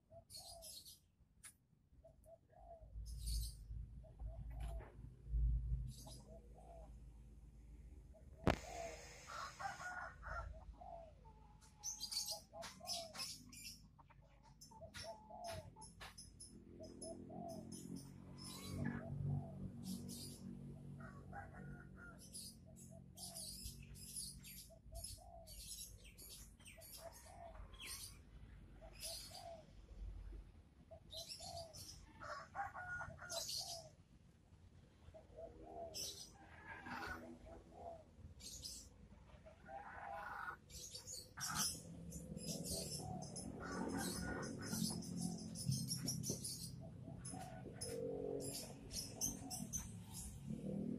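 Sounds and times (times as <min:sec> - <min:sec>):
faint bird calls: 0:08.2 - 0:13.4
chickens clucking: 0:08.4 - 0:16.2, 0:39.3 - 0:41.8, 0:42.4 - 0:50.3.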